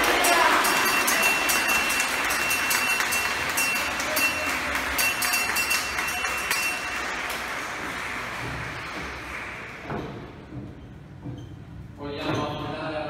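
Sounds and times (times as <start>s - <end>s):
crowd voices: 0.0s - 10.4s.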